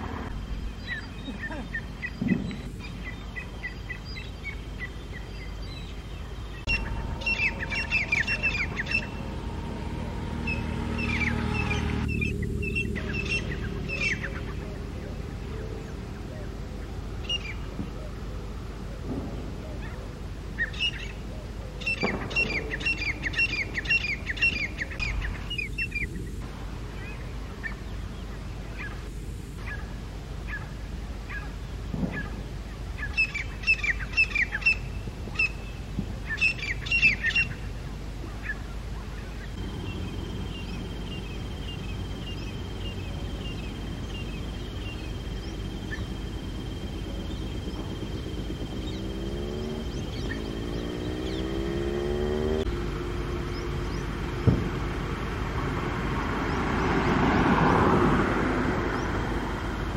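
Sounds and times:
francolins calling shrilly: 0:00.0 - 0:18.2, 0:19.8 - 0:26.4, 0:33.0 - 0:52.6
steady high trill: 0:06.6 - 0:14.5.

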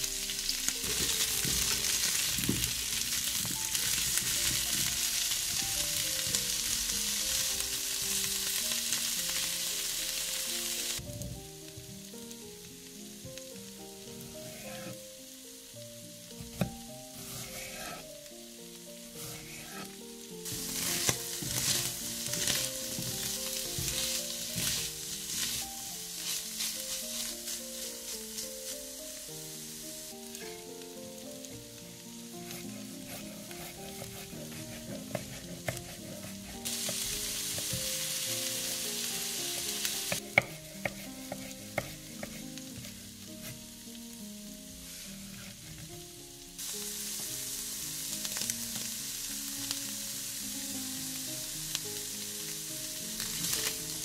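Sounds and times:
food sizzling in a pan: 0:00.0 - 0:54.0
soft background melody: 0:00.0 - 0:54.0
spatula stirring: 0:00.8 - 0:08.1, 0:14.2 - 0:15.0, 0:16.5 - 0:18.1, 0:19.1 - 0:29.3, 0:32.4 - 0:43.6.

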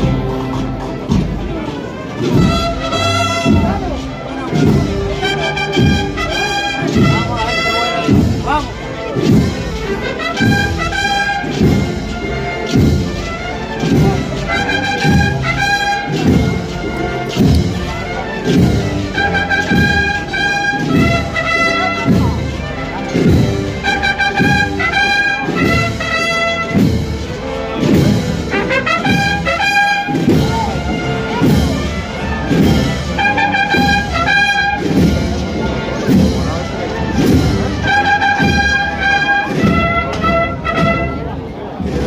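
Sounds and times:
brass band playing a march: 0:00.0 - 0:42.0.

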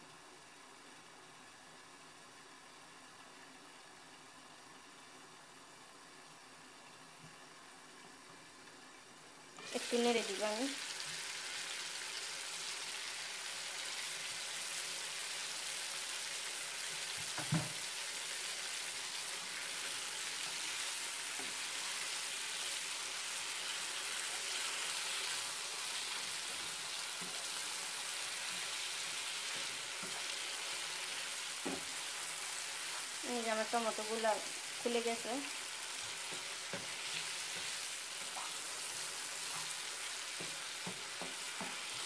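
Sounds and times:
curry sizzling in a pan: 0:00.0 - 0:42.0
spatula knocking against pan: 0:40.4 - 0:41.8.

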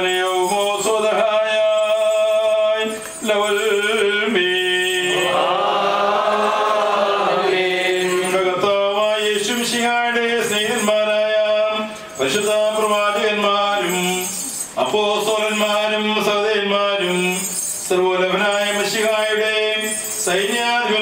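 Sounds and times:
men chanting a hymn: 0:03.4 - 0:09.8.

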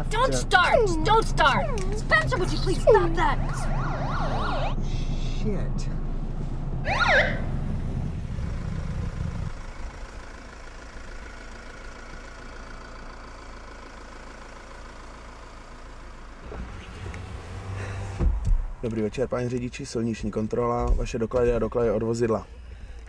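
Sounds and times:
car engine running: 0:00.0 - 0:23.0
police siren whoop: 0:02.7 - 0:05.1, 0:06.8 - 0:07.6.

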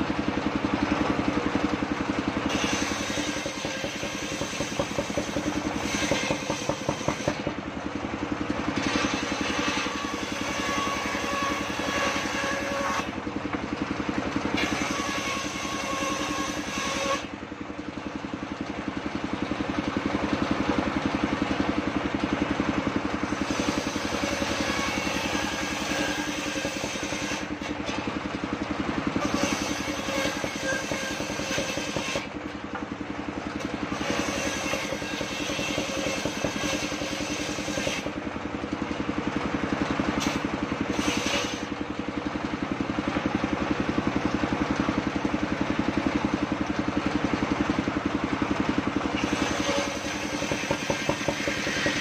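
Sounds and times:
engine drone: 0:00.0 - 0:52.0
saw blade cutting wood: 0:00.8 - 0:13.7, 0:14.5 - 0:17.4, 0:22.7 - 0:28.4, 0:29.0 - 0:38.3, 0:40.1 - 0:41.9, 0:48.4 - 0:52.0.

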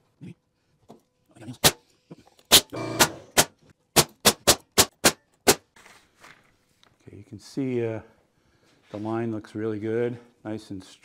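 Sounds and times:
hammer striking nails: 0:02.5 - 0:05.6.

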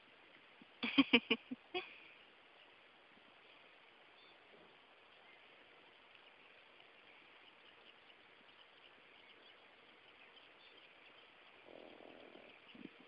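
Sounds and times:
faint high chirps: 0:03.4 - 0:13.0.

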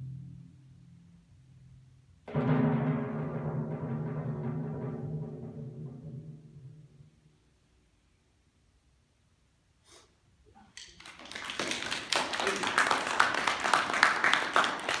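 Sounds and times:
people clapping: 0:10.6 - 0:15.0.

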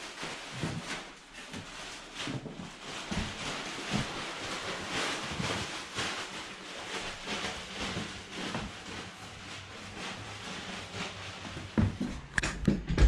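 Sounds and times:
rustling: 0:00.0 - 0:12.3.

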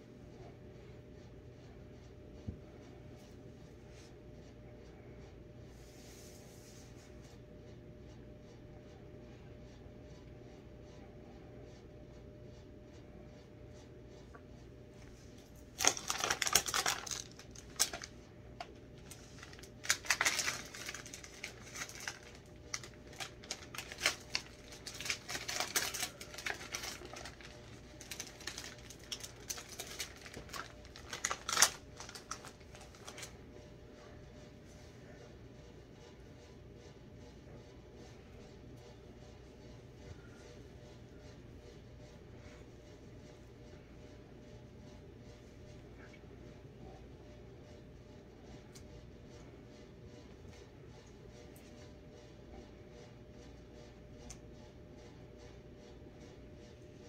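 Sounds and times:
plastic package crinkling: 0:15.4 - 0:33.3.

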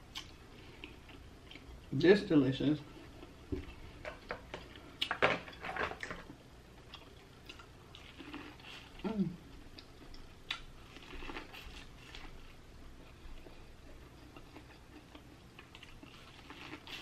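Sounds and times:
wet chewing: 0:00.1 - 0:01.8, 0:09.6 - 0:17.0
person humming: 0:09.0 - 0:09.4.

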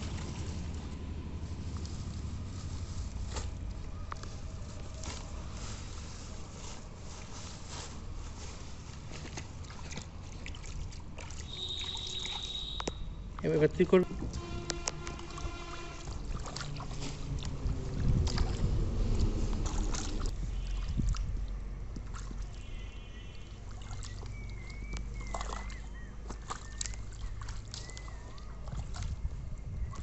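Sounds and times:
hands splashing in muddy water: 0:08.8 - 0:13.6, 0:14.6 - 0:30.0
low rumble: 0:16.1 - 0:20.5.

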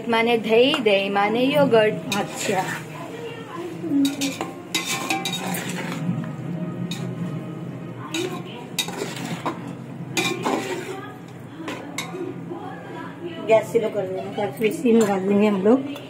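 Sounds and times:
spoon scraping cooking pot: 0:04.0 - 0:06.1, 0:08.1 - 0:12.2.

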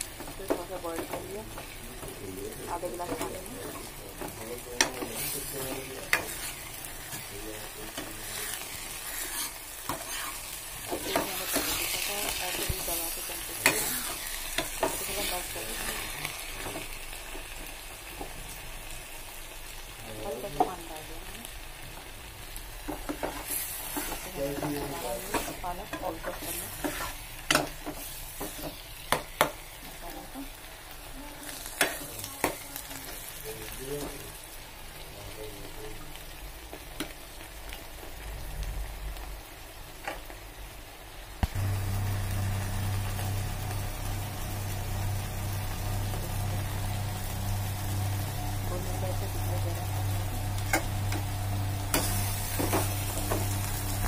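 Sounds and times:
food sizzling in a pan: 0:00.0 - 0:54.0
ladle scraping a pan: 0:08.2 - 0:11.8.

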